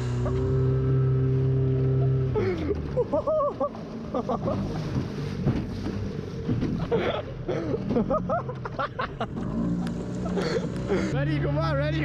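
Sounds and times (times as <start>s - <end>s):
water slapping against hull: 0.0s - 11.1s
outboard motor running: 0.0s - 12.0s
water rushing past hull: 0.0s - 12.0s.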